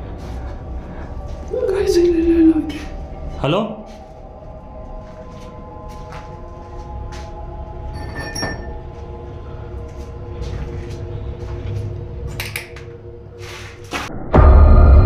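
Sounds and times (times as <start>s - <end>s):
eerie drone music: 0.0s - 15.0s
low rumble: 0.0s - 15.0s
bell-like chime: 7.9s - 8.9s.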